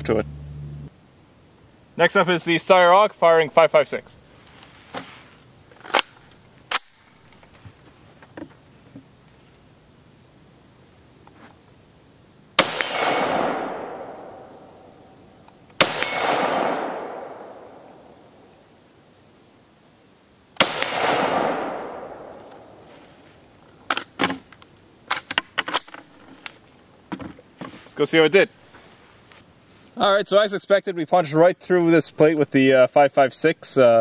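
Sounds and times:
rifle shots echoing: 12.6 - 15.1, 15.8 - 18.3, 20.6 - 22.8.

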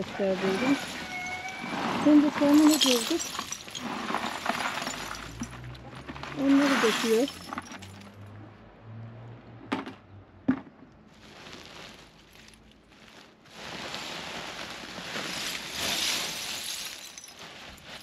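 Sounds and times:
glass shards pouring: 0.4 - 5.8, 6.4 - 8.1, 15.1 - 18.0
glass clinks: 2.5 - 5.5.

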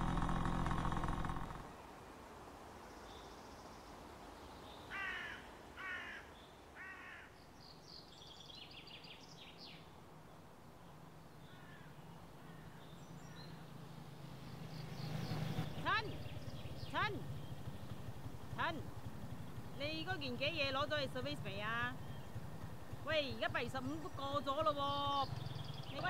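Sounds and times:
small birds chirping: 2.9 - 26.0
crow cawing: 4.9 - 7.4, 11.4 - 13.6.

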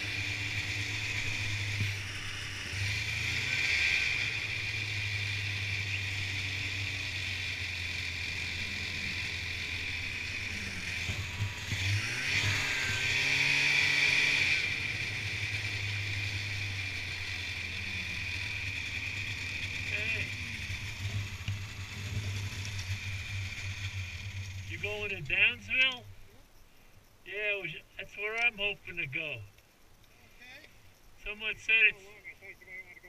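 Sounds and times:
snowmobile engine running: 0.0 - 26.0
high whine: 0.0 - 26.3.

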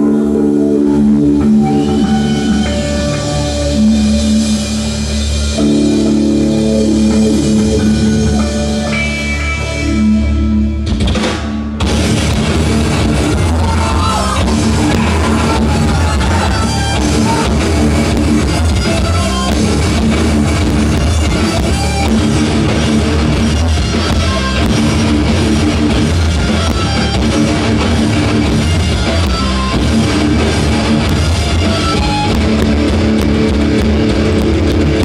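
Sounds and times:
bass guitar: 0.0 - 35.0
distorted electric guitars: 0.0 - 35.0
fast busy drumming: 11.0 - 35.0.

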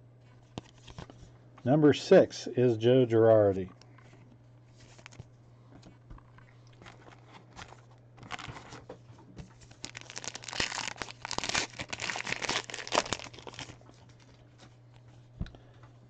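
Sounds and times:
card pack wrapper crinkling: 4.8 - 5.2, 6.8 - 8.8, 9.6 - 14.4.

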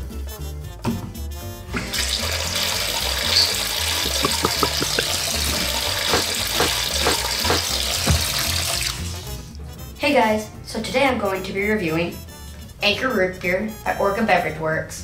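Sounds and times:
water pouring into bathtub: 1.8 - 9.3
background music with bass beat: 3.4 - 7.6.

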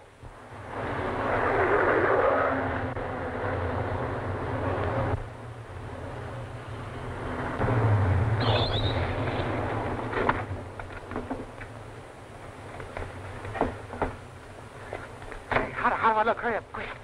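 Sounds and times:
car engine speeding: 0.4 - 10.8
high squeal: 8.4 - 9.4.

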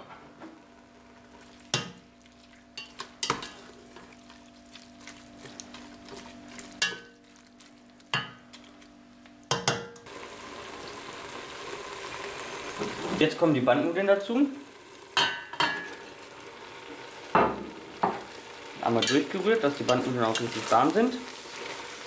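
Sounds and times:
spoon stirring in pot: 1.3 - 8.9
spoon knocking against pot: 9.5 - 10.0.

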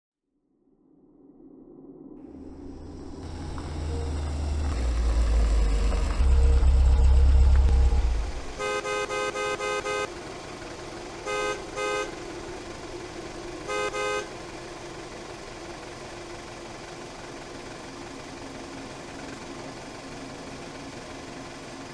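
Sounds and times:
loud deep rumble: 2.2 - 19.0
car horn tooting: 6.0 - 10.2, 11.2 - 12.3, 13.6 - 14.4.

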